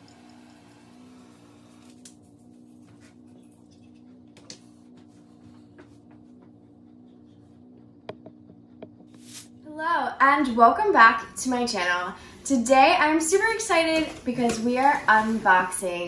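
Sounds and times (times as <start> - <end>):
steady low hum: 0.3 - 16.0.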